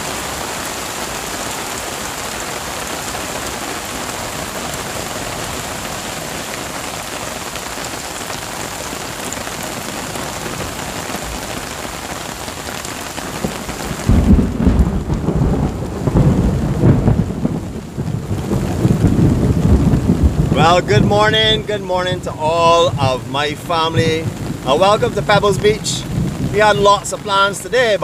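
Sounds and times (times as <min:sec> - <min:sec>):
rain hissing: 0:00.0 - 0:28.0
rolling thunder rumble: 0:13.3 - 0:28.0.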